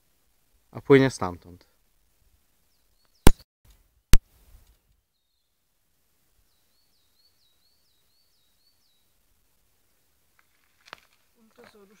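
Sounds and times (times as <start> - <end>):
small bird singing: 2.7 - 3.4, 5.1 - 5.6, 6.4 - 9.2.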